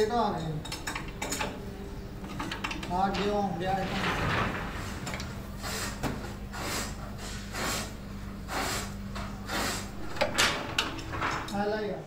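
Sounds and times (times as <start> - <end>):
machinery motor humming: 1.6 - 6.5, 9.3 - 11.8.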